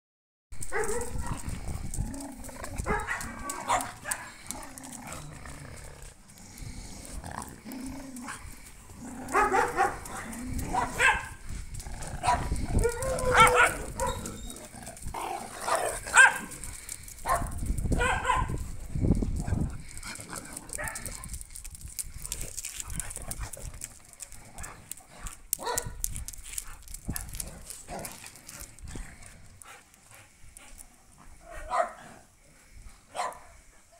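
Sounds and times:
dogs barking: 0.7s - 1.5s, 2.8s - 4.5s, 9.2s - 11.4s, 12.2s - 14.3s, 15.6s - 16.6s, 17.2s - 18.6s, 25.6s - 26.0s, 31.5s - 32.0s, 33.1s - 33.6s.

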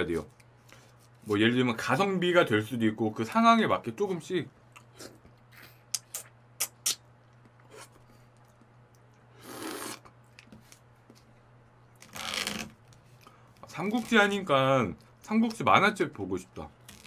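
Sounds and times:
wet mouth clicks and smacks: 4.7s - 7.7s
slurping from cup: 9.4s - 10.1s.

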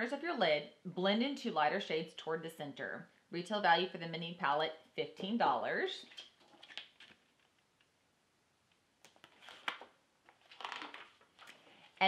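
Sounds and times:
paper pages turning: 6.0s - 7.9s, 9.0s - 12.0s.

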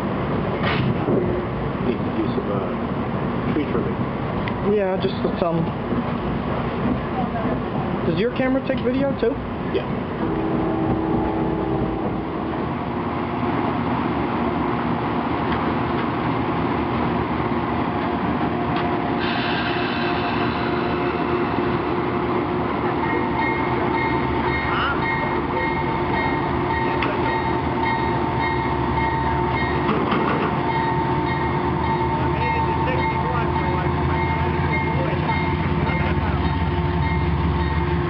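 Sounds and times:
train idling: 0.0s - 38.0s
train rumbling at speed: 0.0s - 38.0s
steady whining tones: 9.5s - 38.0s.

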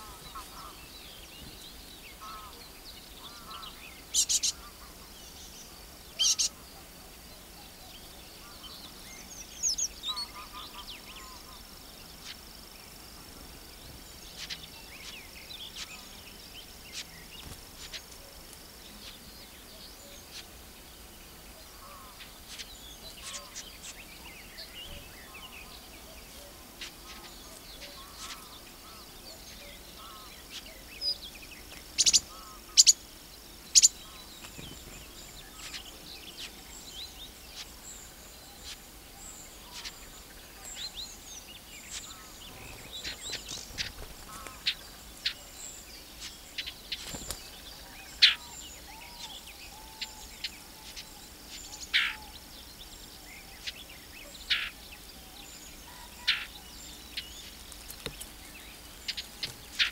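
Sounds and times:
songbirds chirping and trilling: 0.0s - 59.9s
loud short bird calls: 2.1s - 5.1s, 6.2s - 6.7s.

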